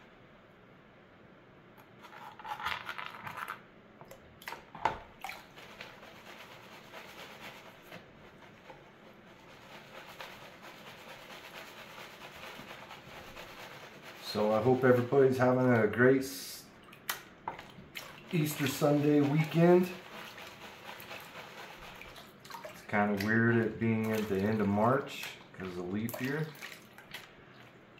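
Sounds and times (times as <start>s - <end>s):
gravel swishing in a pan: 5.4s - 15.8s, 18.3s - 22.4s.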